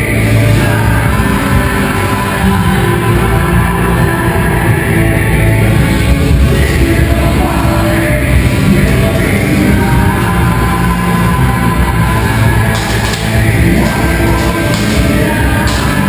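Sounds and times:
rock music with singing: 0.0 - 16.0.

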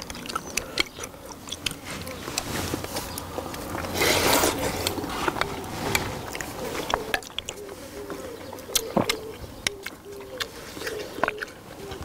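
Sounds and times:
person slurping broth: 3.9 - 7.0.

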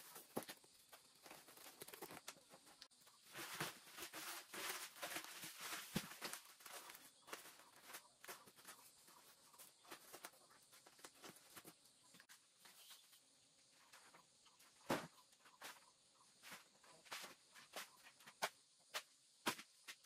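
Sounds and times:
plastic sacks rustling: 3.2 - 8.0
footsteps on dirt floor: 3.4 - 13.0, 14.8 - 20.0.

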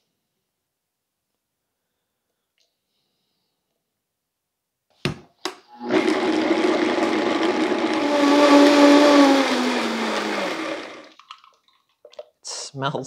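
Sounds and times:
blender running: 5.7 - 11.2.

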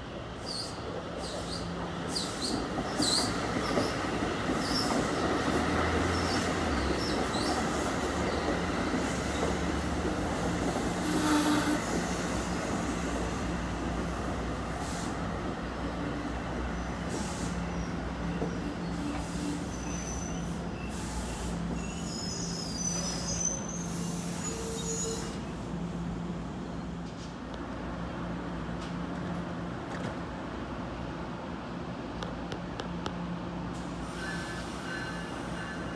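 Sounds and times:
train wheels rumbling on rail: 0.0 - 35.9
high wheel squeal: 17.1 - 25.4, 34.0 - 35.9.

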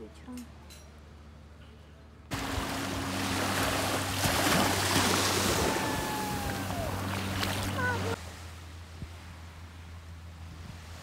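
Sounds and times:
steady low hum: 0.0 - 11.0
small waves washing onto beach: 2.3 - 9.5.

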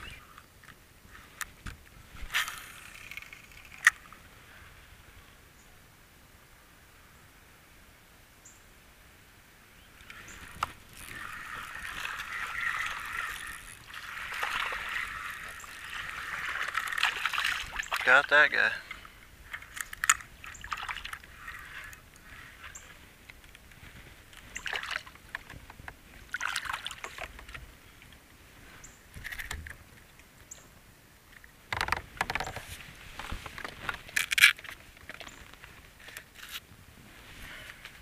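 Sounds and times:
water splashing and dripping: 10.5 - 18.4, 19.5 - 21.7, 24.6 - 25.5, 26.3 - 27.6.

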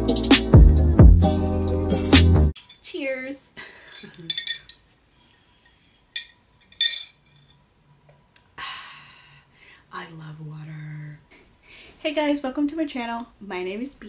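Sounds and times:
glass jar clinking: 3.9 - 4.9, 6.1 - 7.6.

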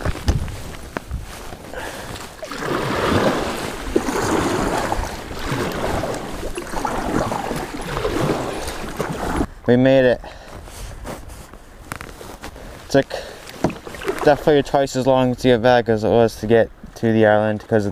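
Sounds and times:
wind buffeting microphone: 0.0 - 9.7
paddle strokes splashing water: 1.3 - 9.5, 13.2 - 14.8.

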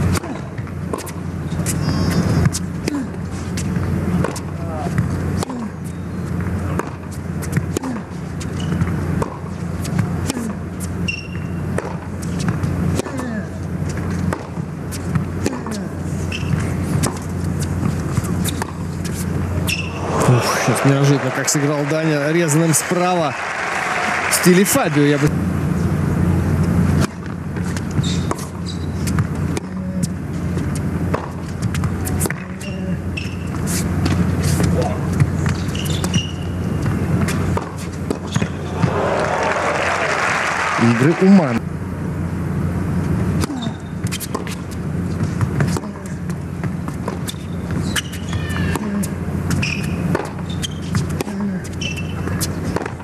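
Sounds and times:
tennis ball bouncing: 0.0 - 2.7, 3.6 - 20.2, 26.9 - 39.0, 43.4 - 53.0
arena hum: 0.0 - 53.0
shoe squeaks: 1.0 - 2.7, 5.8 - 6.4, 8.4 - 9.0, 10.8 - 11.6, 14.9 - 20.0, 27.6 - 30.1, 31.5 - 38.7, 43.5 - 46.1, 47.1 - 52.9.

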